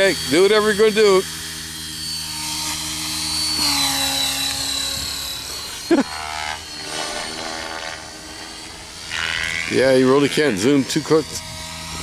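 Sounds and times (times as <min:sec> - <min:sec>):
model helicopter whine and rotor buzz: 0:00.0 - 0:12.0.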